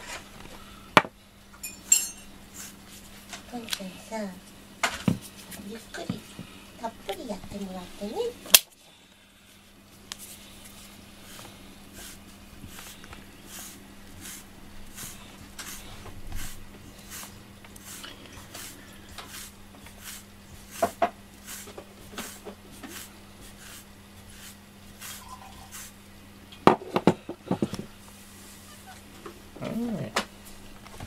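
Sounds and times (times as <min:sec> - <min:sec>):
brush swishing through fur: 0:02.5 - 0:04.3, 0:09.4 - 0:26.0.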